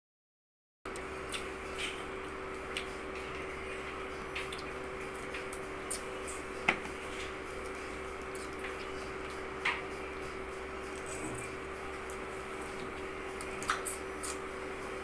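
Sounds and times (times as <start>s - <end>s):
steady low hum: 0.9s - 15.0s
wet chewing smacks: 7.1s - 14.5s.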